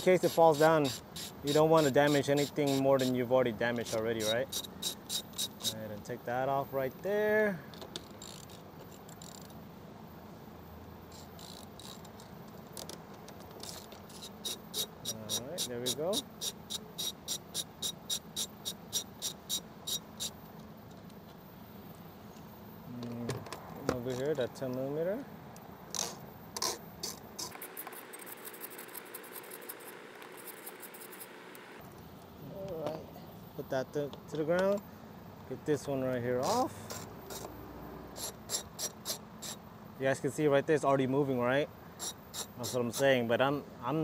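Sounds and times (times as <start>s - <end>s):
hand ratchet clicking: 0.0s - 3.2s, 3.8s - 5.8s, 8.0s - 9.5s, 11.2s - 13.0s, 13.6s - 20.4s, 26.0s - 31.7s, 36.5s - 37.5s, 42.0s - 43.0s.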